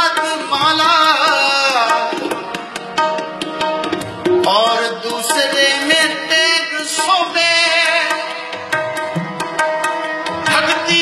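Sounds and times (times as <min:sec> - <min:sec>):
harmonium drone: 0:00.0 - 0:11.0
man singing a hymn: 0:04.5 - 0:08.3.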